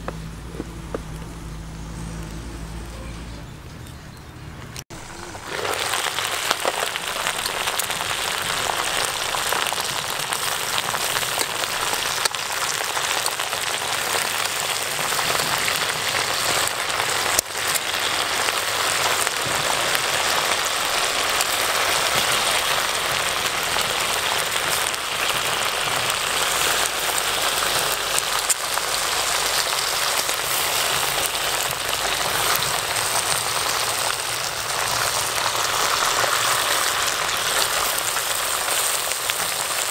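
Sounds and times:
pot boiling and bubbling: 0.0s - 3.0s, 4.9s - 39.9s.

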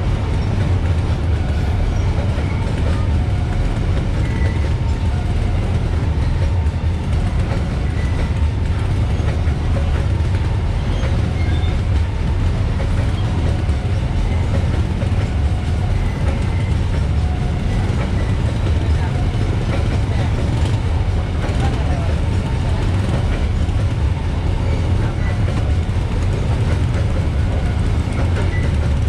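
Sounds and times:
freight train rumble: 0.0s - 29.0s
wheels clacking over rail joints: 0.0s - 29.0s.

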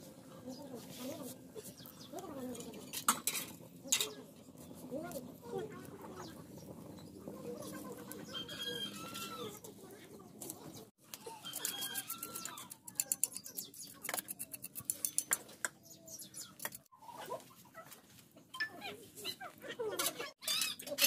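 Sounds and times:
chickens clucking: 3.8s - 14.8s, 15.4s - 21.0s
sharp clicks and crackles: 10.4s - 16.9s.

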